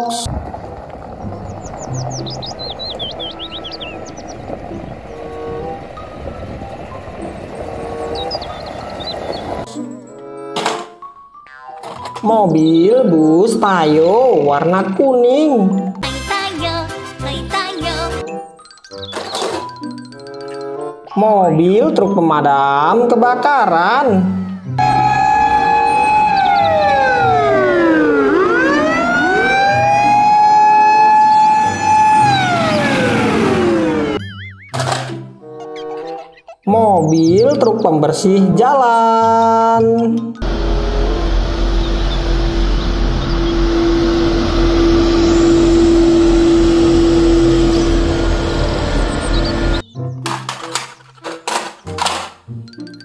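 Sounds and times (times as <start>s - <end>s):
fire engine siren wailing: 0.3s - 9.7s, 23.8s - 34.6s, 40.4s - 49.8s
street sweeper truck running: 0.3s - 9.7s, 24.8s - 34.2s, 40.4s - 49.8s.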